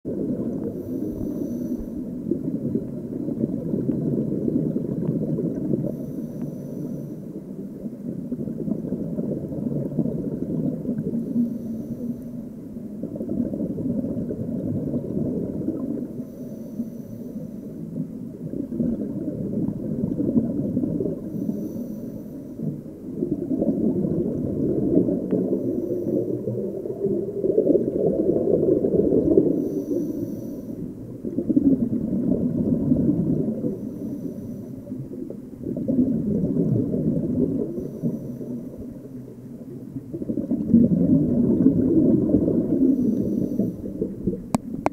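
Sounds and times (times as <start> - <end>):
rumble of bubbles: 0.0 - 44.9
diver breathing through regulator: 0.6 - 2.2, 5.8 - 7.5, 11.2 - 12.5, 16.2 - 17.8, 21.2 - 22.7, 25.4 - 26.8, 29.4 - 30.9, 33.7 - 35.0, 37.7 - 38.8, 42.8 - 44.1.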